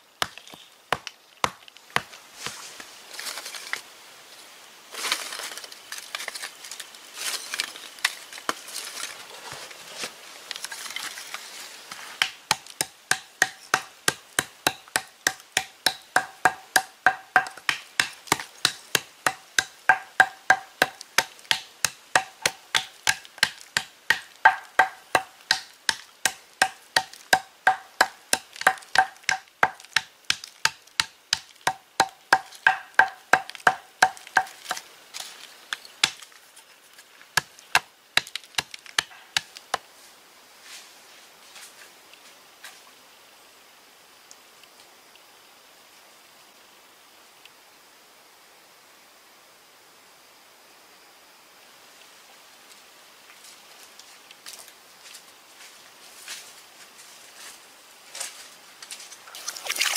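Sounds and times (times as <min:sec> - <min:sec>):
pounder striking stone slab: 0:00.2 - 0:02.1, 0:12.2 - 0:34.8, 0:37.4 - 0:39.6.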